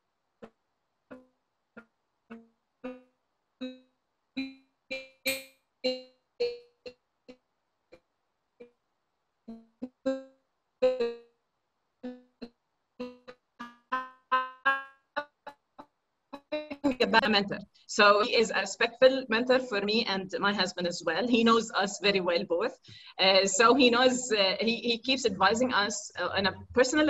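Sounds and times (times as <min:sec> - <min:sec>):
choppy woman's voice snippets: 0:16.7 - 0:27.0.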